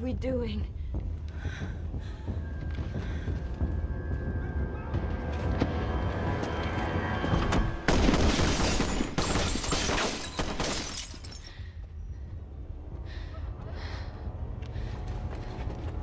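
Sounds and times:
glass shattering: 0:08.2 - 0:11.5.

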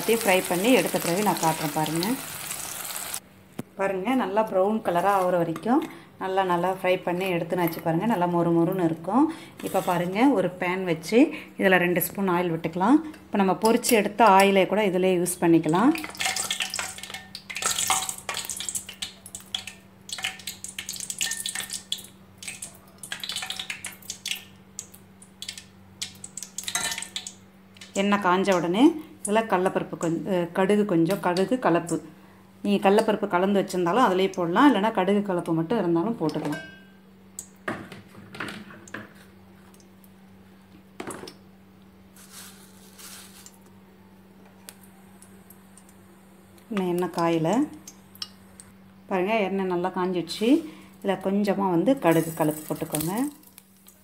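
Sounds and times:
oil crackling in frying pan: 0:00.0 - 0:03.2, 0:16.0 - 0:28.0, 0:52.0 - 0:54.0.

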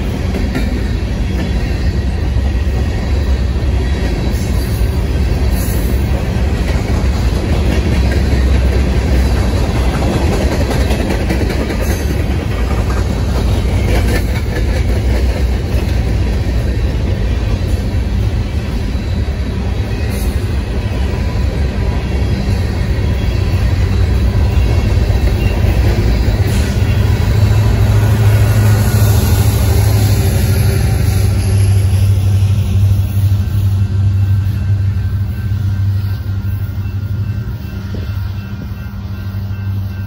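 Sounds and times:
train wheels rumbling on rail: 0:00.0 - 0:40.0
wheels clacking over rail joints: 0:03.9 - 0:18.2.

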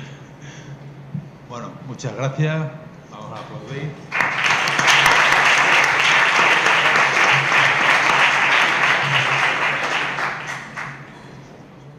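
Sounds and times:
audience applauding: 0:04.1 - 0:11.3.

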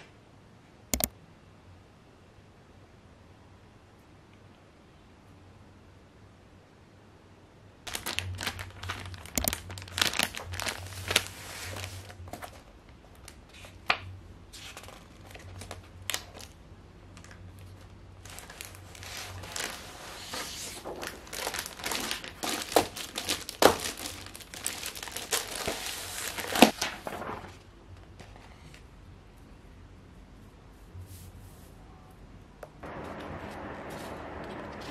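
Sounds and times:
stiff paper crinkling: 0:07.9 - 0:13.9, 0:14.5 - 0:28.9.

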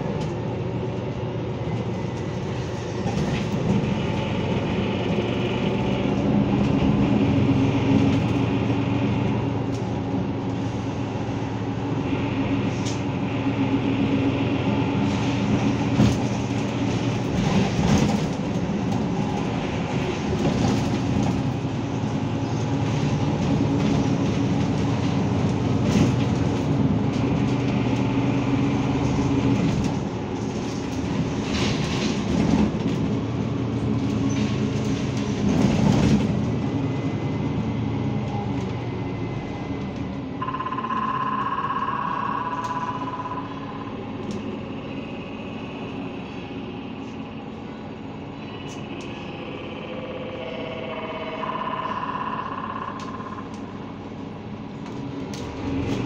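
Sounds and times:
bus engine hum: 0:00.0 - 0:56.0
road noise: 0:00.0 - 0:56.0
high whine: 0:40.4 - 0:54.3.

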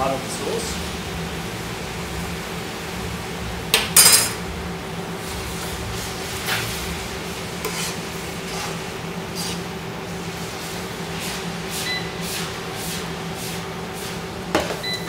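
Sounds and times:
metal utensil scraping frying pan: 0:07.6 - 0:09.6.

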